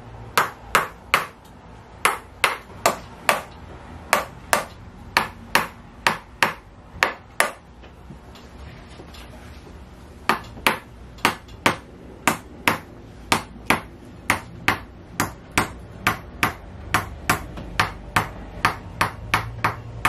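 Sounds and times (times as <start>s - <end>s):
mallet knocking on wedge: 10.3s - 20.0s.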